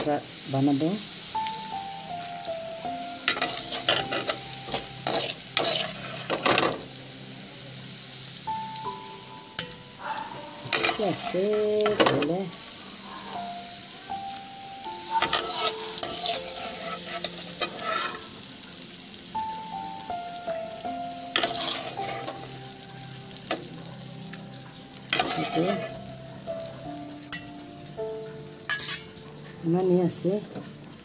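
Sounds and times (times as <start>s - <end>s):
food sizzling in oil: 0.0s - 31.0s
metal spatula scraping pan: 3.3s - 6.9s, 10.6s - 12.3s, 15.1s - 18.4s, 21.3s - 22.6s, 25.1s - 26.1s, 28.7s - 29.2s.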